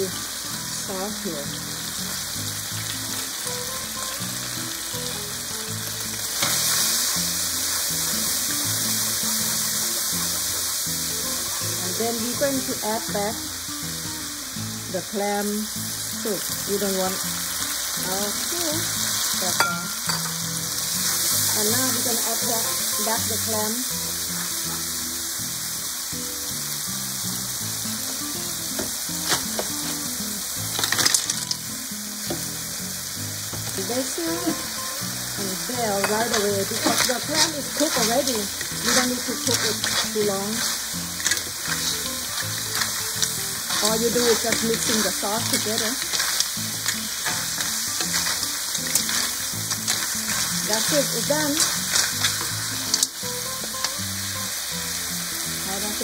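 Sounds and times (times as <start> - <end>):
background music: 0.0 - 56.0
oil sizzling in a wok: 0.0 - 56.0
shells clattering into a pan: 30.7 - 31.6
wooden spatula stirring: 36.0 - 52.5.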